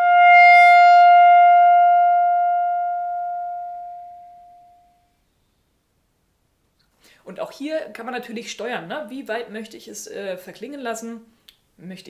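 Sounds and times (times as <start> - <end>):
clarinet holding a note: 0.0 - 5.1.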